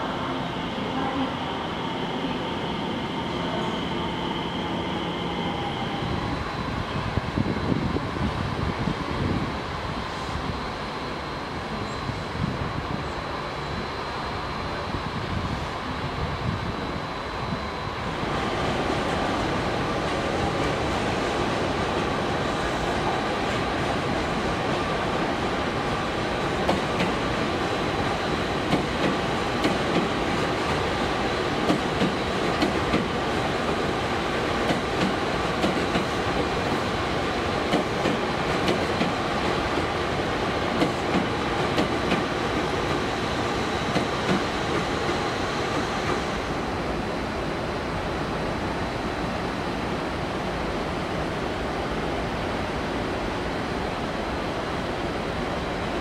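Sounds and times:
station ambience: 0:00.0 - 0:56.0
train running noise: 0:00.0 - 0:56.0
train wheels clacking over rail joints: 0:28.7 - 0:30.8, 0:31.6 - 0:33.8, 0:34.6 - 0:36.2, 0:37.6 - 0:40.0, 0:40.7 - 0:43.1.

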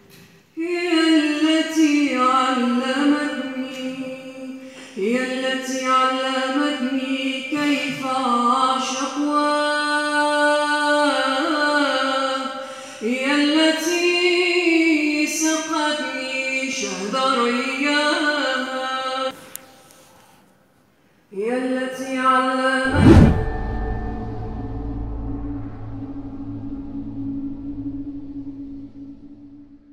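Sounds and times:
woman singing ornamented phrases: 0:00.6 - 0:19.4, 0:21.4 - 0:22.9.

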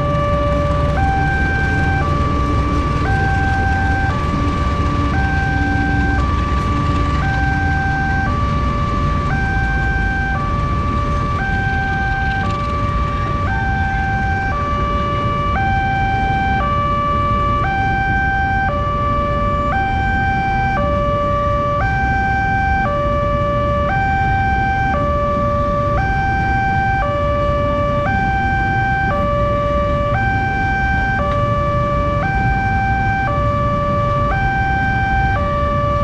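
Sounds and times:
idling road traffic rumble: 0:00.0 - 0:36.0
two-tone level-crossing alarm: 0:00.0 - 0:36.0.

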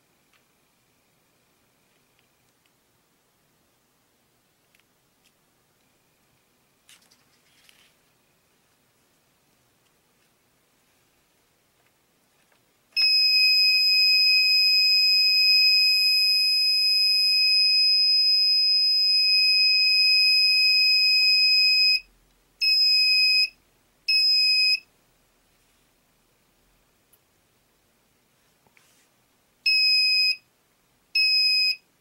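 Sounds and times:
high-pitched buzzer tone: 0:13.0 - 0:23.5.

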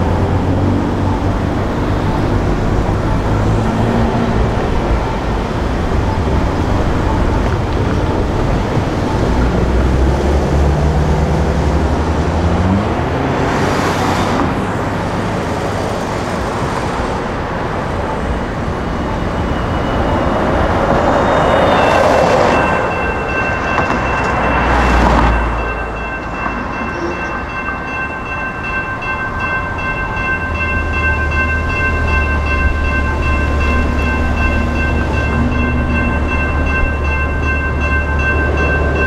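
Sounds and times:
engine rumbling: 0:00.0 - 0:39.0
road traffic: 0:00.0 - 0:39.0
electronic crossing warning bell: 0:18.2 - 0:39.0.

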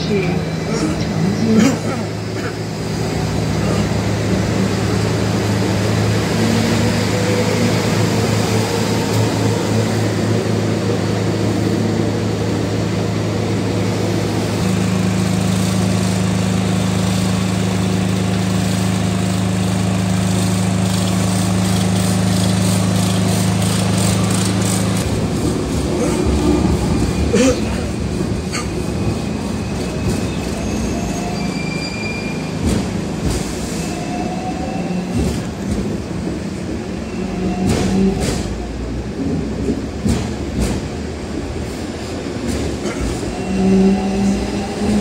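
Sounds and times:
tram motor hum: 0:00.0 - 0:30.7.

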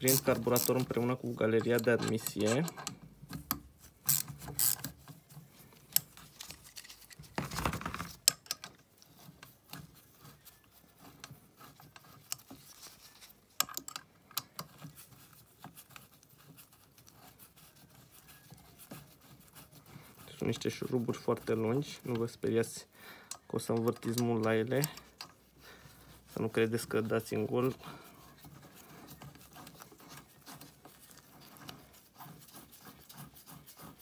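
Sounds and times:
screwdriver clicks and rattles: 0:01.6 - 0:05.0, 0:08.0 - 0:08.8, 0:13.5 - 0:14.8.

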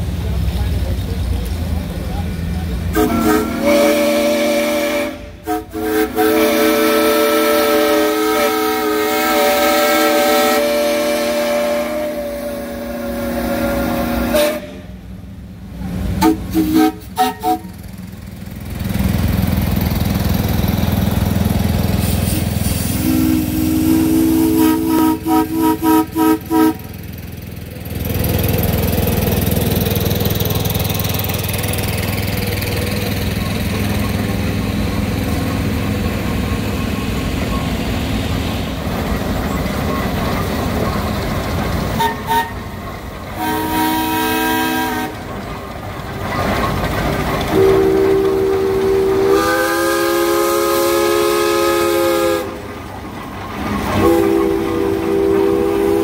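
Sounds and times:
heavy engines running: 0:00.0 - 0:56.0
steam whistle blasts and toots: 0:02.9 - 0:14.9, 0:16.2 - 0:17.7, 0:22.0 - 0:26.8, 0:42.0 - 0:42.6, 0:43.4 - 0:45.2, 0:47.5 - 0:52.6, 0:54.0 - 0:56.0.

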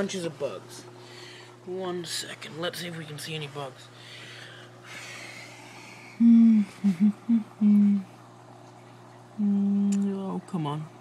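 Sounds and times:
low steady hum: 0:00.0 - 0:11.0
man humming: 0:06.2 - 0:08.1, 0:09.4 - 0:10.0.

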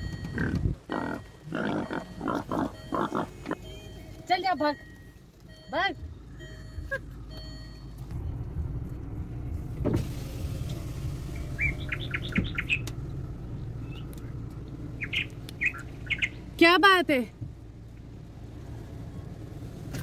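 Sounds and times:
car engine idling: 0:00.0 - 0:20.0
bird chirps: 0:11.3 - 0:12.9, 0:13.8 - 0:14.1, 0:15.0 - 0:16.4.

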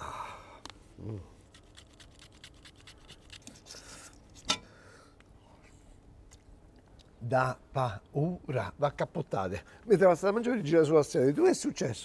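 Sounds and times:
man humming: 0:01.0 - 0:01.4.

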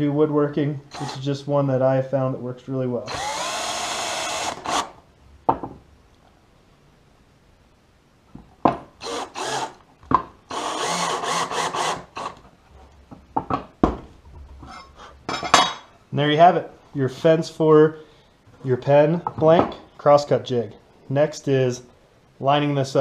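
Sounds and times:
cordless drill into wood: 0:00.9 - 0:01.2, 0:03.1 - 0:05.0, 0:09.0 - 0:09.8, 0:10.5 - 0:12.4.

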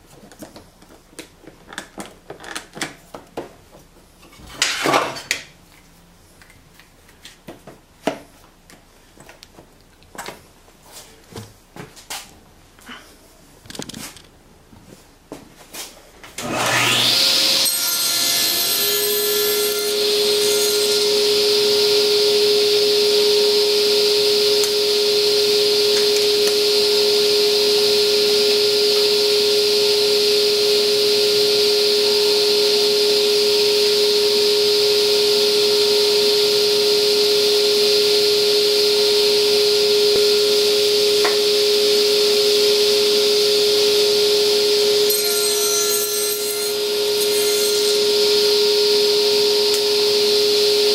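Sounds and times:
table saw running: 0:16.4 - 0:50.9.

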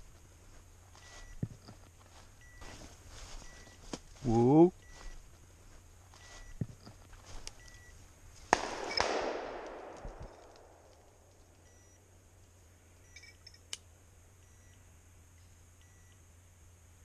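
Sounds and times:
shotgun shots echoing: 0:08.5 - 0:11.3.

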